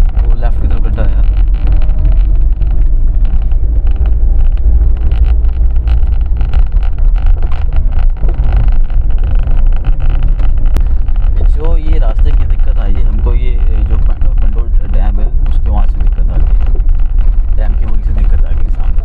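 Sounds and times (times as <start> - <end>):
car engine and tyres rumbling: 0.0 - 19.0
road knocks and rattles: 0.0 - 19.0
wind buffeting microphone: 0.0 - 19.0.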